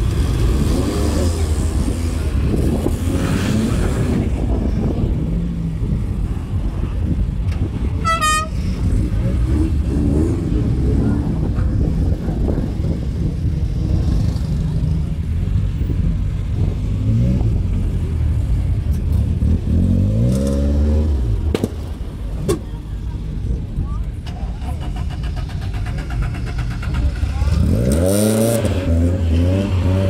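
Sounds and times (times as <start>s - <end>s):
engine revving: 0.0s - 4.6s, 8.7s - 11.6s, 16.5s - 21.7s, 24.3s - 30.0s
classic car engines running: 0.0s - 30.0s
car horn toot: 8.0s - 8.7s.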